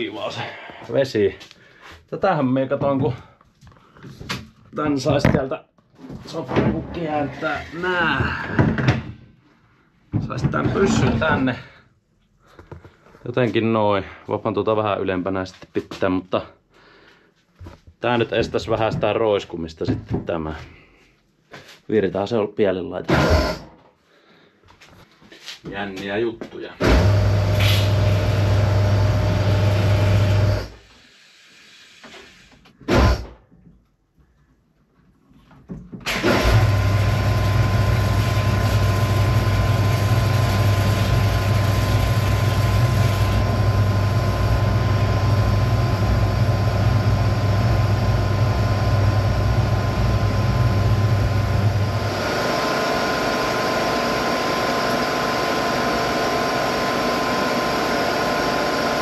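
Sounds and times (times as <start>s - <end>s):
pump motor humming: 26.8s - 30.8s, 36.1s - 59.0s.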